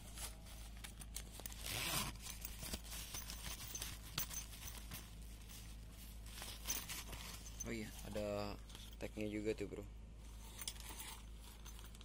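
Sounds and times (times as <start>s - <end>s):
bag rustling: 0.0s - 9.0s.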